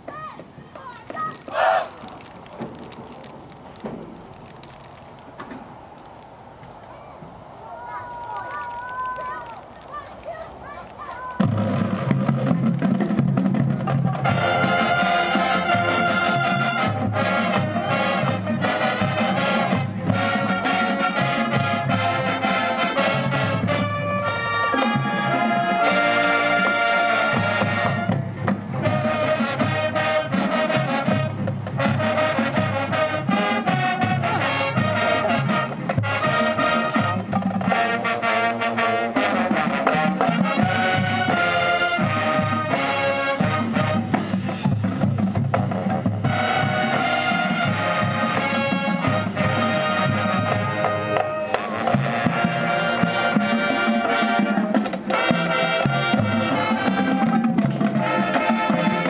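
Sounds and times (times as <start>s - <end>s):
marching band playing: 9.8s - 59.0s
trumpets and trombones chords: 14.1s - 45.0s, 45.7s - 59.0s.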